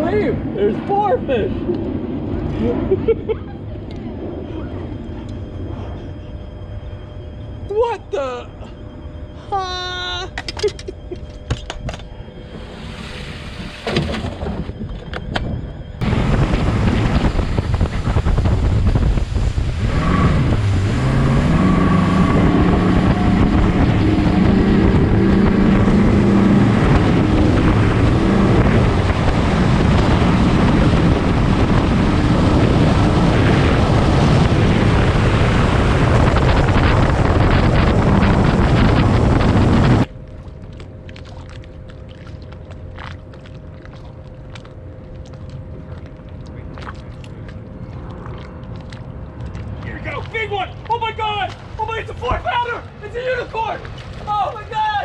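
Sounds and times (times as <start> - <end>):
outboard motor drone: 0.0 - 54.8
wind buffeting microphone: 10.9 - 55.0
water spray rushing off hull: 12.5 - 14.4, 16.0 - 32.2.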